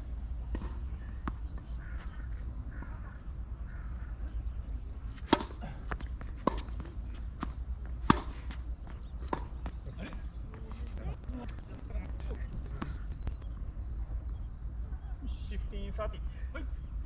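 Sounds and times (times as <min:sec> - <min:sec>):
low steady rumble: 0:10.2 - 0:15.2.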